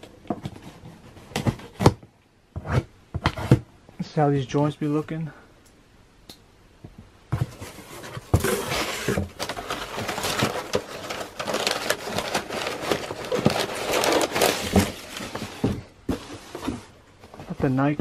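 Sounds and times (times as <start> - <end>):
packing paper rustling and crackling: 7.4 - 18.0.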